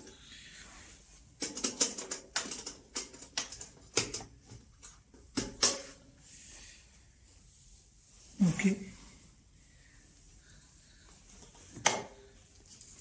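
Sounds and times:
hands handling vacuum cleaner parts: 0.0 - 6.3.

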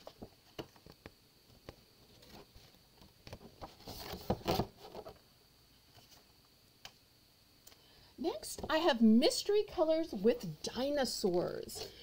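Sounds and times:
paper pages rustling: 0.0 - 5.2, 5.9 - 6.3.

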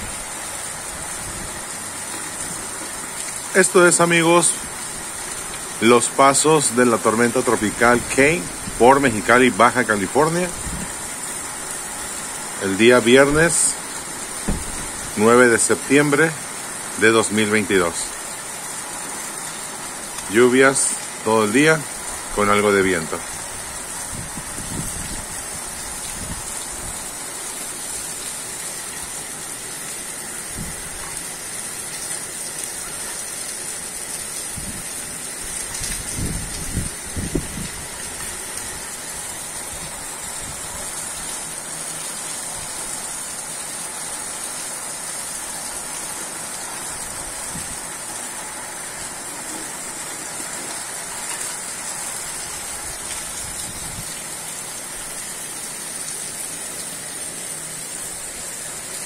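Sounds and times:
steady rain falling: 0.0 - 59.0
low thumps: 14.4 - 15.0.

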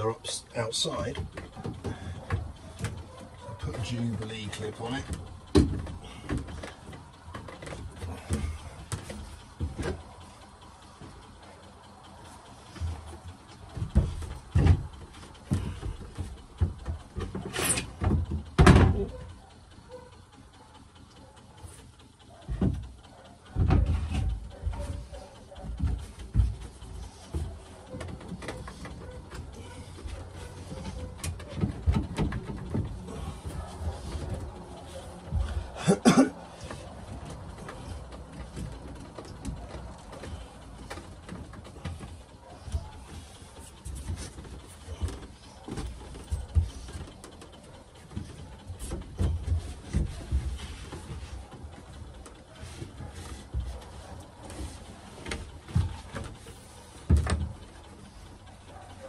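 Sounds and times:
knocks and thumps on wood: 5.0 - 10.1, 12.8 - 19.3, 22.5 - 22.8, 23.5 - 47.4, 52.6 - 57.9
man coughing: 35.8 - 36.5.

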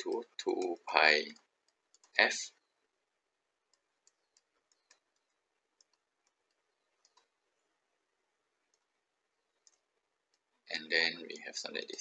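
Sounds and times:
faint clicks of input device: 3.7 - 7.4, 9.6 - 10.5.

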